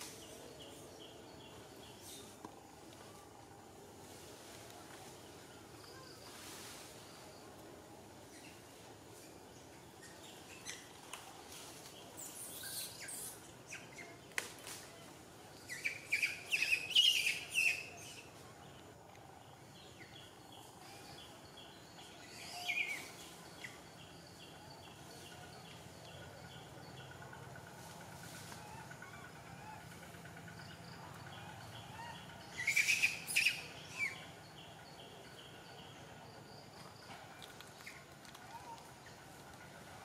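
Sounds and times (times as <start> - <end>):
faint outdoor background noise: 0.0 - 40.0.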